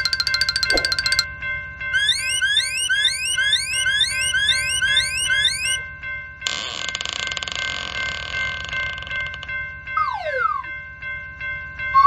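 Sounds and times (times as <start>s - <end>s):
steady held tones: 0.0s - 1.3s.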